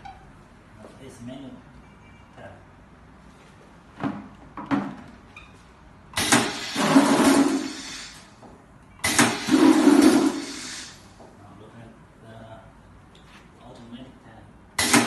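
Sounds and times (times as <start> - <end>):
pneumatic filling machine hissing: 6.2 - 8.4, 9.0 - 11.2, 14.8 - 15.0.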